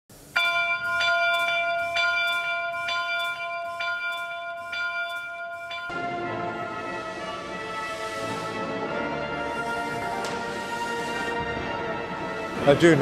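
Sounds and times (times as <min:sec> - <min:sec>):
bell ringing: 0:00.4 - 0:06.6.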